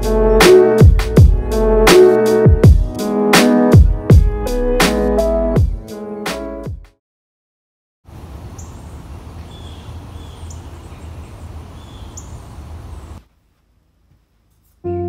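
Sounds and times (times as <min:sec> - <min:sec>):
bird chirps: 0:08.5 - 0:13.2.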